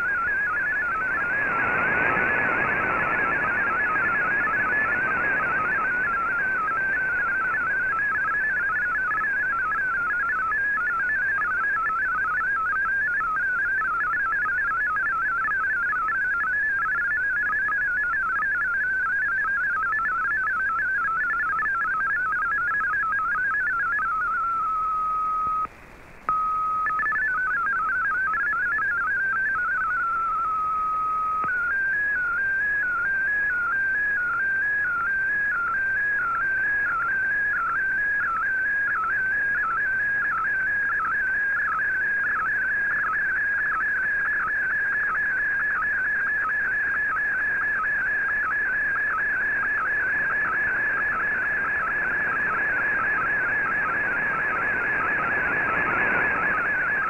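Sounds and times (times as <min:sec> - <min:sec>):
radio background hiss: 0:00.0 - 0:10.8, 0:31.2 - 0:57.0
warbling digital radio tones: 0:00.0 - 0:24.4, 0:31.5 - 0:57.0.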